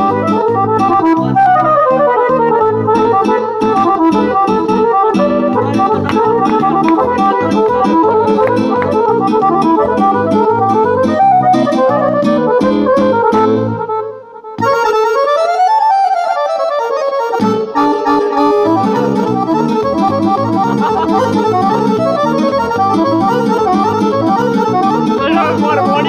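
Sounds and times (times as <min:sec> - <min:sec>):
piano accordion playing lively tune: 0:00.0 - 0:26.0.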